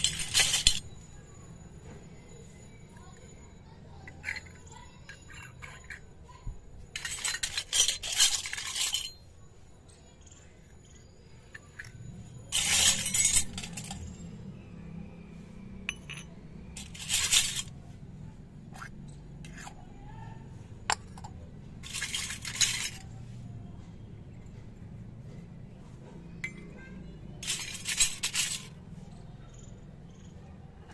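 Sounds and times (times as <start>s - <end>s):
small metal cups clinking: 0.0s - 1.1s, 4.0s - 6.2s, 6.9s - 9.3s, 11.4s - 14.2s, 15.8s - 17.7s, 18.7s - 19.9s, 20.8s - 23.1s, 26.4s - 26.8s, 27.4s - 28.8s
metal taps on concrete: 15.9s - 16.4s, 20.9s - 21.4s.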